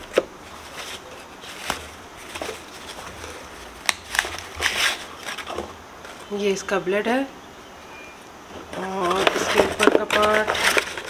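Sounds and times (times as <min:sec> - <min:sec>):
paper and foam rustling: 0:00.0 - 0:06.3, 0:08.6 - 0:11.0.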